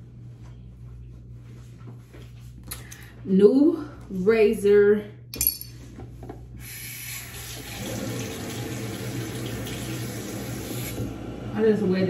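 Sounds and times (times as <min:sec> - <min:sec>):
tap water running: 0:06.6 - 0:11.2.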